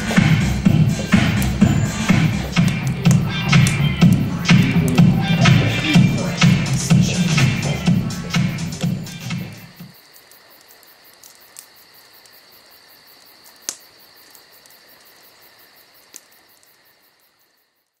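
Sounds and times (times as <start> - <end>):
electronic background music: 0.0 - 9.9
high-pitched chirring: 0.0 - 9.9.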